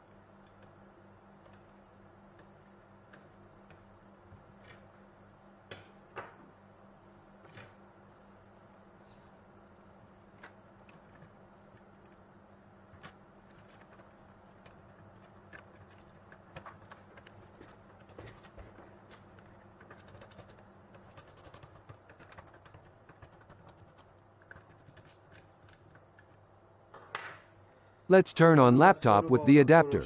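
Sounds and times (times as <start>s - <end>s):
small clicks taps and scrapes: 12.9s - 26.4s.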